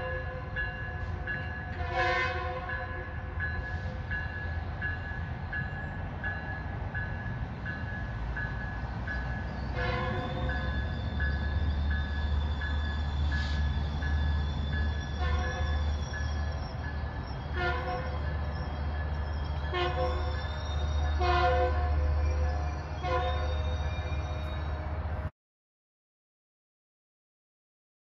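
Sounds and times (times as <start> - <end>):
train horn blasts: 0.0 - 4.0, 9.7 - 10.9, 15.1 - 15.9, 17.5 - 18.2, 19.6 - 25.3
crossing bell ringing: 0.0 - 25.2
train rumble: 0.0 - 25.3.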